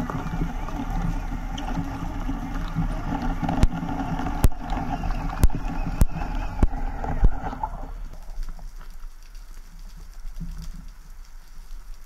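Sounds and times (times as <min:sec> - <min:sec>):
muffled underwater rush: 0:00.0 - 0:09.2.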